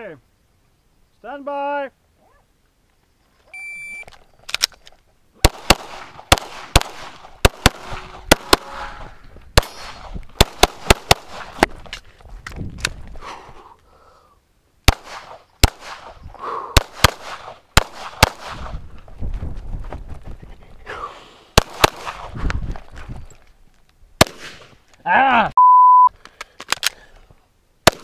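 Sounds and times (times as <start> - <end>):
shot timer beep: 3.6 - 4.0, 25.6 - 26.1
pistol firing shots: 5.4 - 8.8, 9.6 - 11.7, 14.9 - 16.2, 16.8 - 18.7, 21.6 - 22.3, 24.2 - 24.7.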